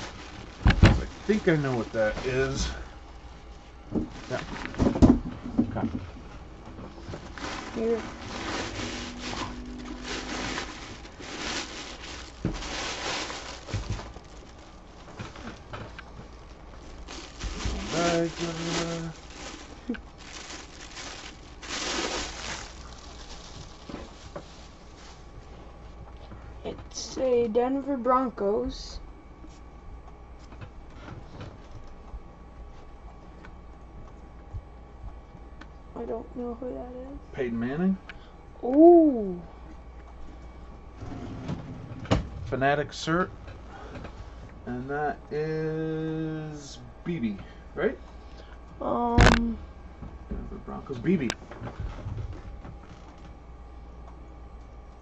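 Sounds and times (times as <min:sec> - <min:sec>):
bags rustling and crinkling: 0:00.0 - 0:02.9, 0:04.0 - 0:05.2, 0:06.8 - 0:25.6
low room hum: 0:00.0 - 0:55.0.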